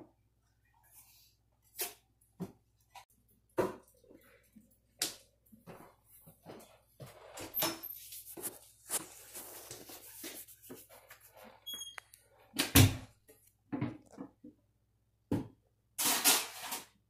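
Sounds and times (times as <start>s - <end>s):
rustling and handling noises: 4.0s - 12.6s.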